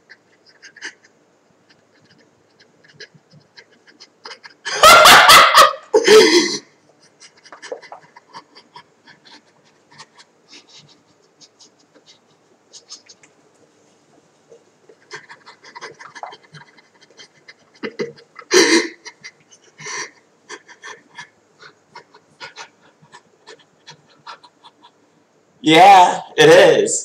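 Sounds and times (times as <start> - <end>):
man yelling: 25.6 - 27.0.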